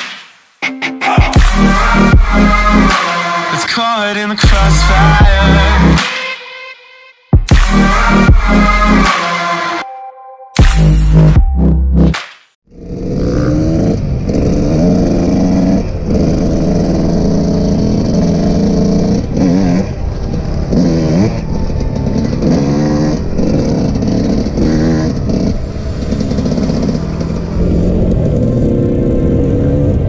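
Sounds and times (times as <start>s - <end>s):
dirt bike engines revving: 12.7s - 30.0s.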